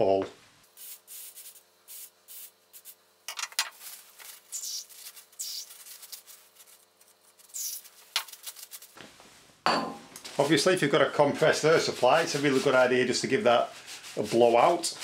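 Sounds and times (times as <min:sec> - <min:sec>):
aerosol spray can hissing: 0:00.7 - 0:03.0, 0:03.8 - 0:09.0
paper towel rubbing: 0:03.8 - 0:09.0, 0:10.4 - 0:15.0.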